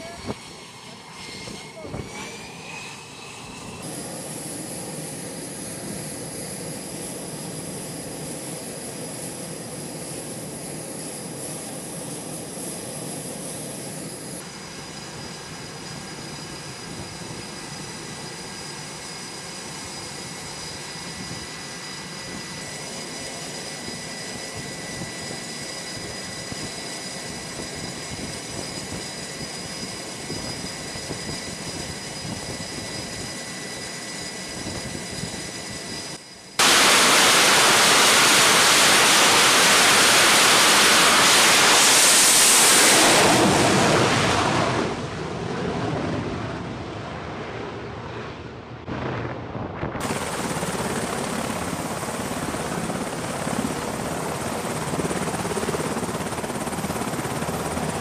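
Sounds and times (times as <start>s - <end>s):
high whining tones: 0.0s - 45.3s
jet engines running: 0.0s - 58.0s.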